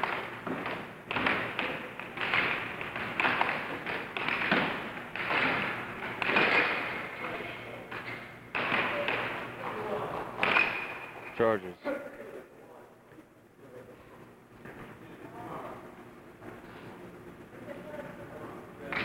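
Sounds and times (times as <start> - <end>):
air hockey puck and mallets clacking: 0.0 - 9.8, 10.4 - 11.3.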